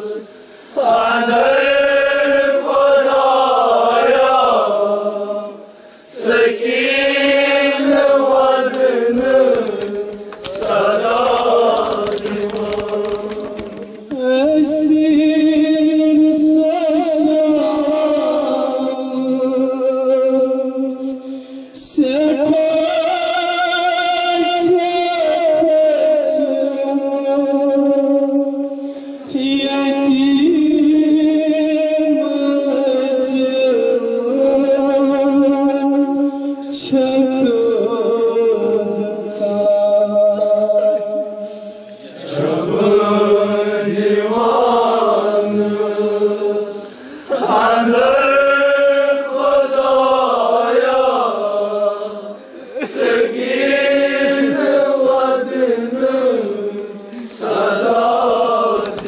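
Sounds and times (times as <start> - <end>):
man chanting a lament: 14.0 - 57.4.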